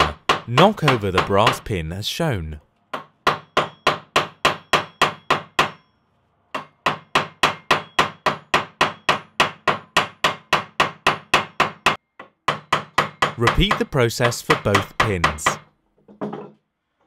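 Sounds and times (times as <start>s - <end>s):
hammer striking metal pin: 2.9s - 15.6s.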